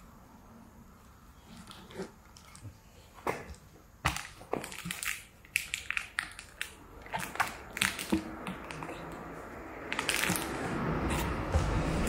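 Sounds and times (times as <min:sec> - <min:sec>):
steady rushing noise: 0:06.8 - 0:12.0.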